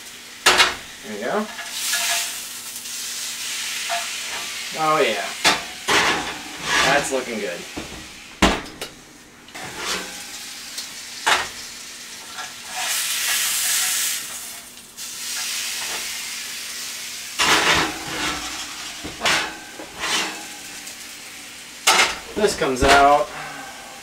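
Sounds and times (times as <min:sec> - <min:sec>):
steak sizzling in a pan: 0:00.0 - 0:24.0.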